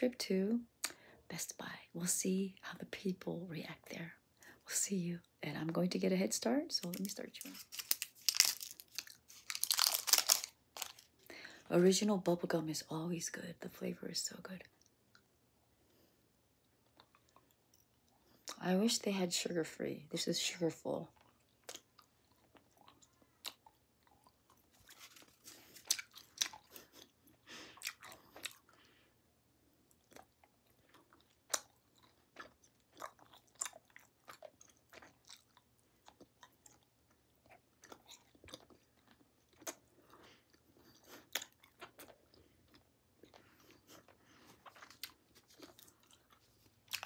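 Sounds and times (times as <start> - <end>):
gum chewing mouth smacks: 29.9 - 40.2, 40.9 - 47.0.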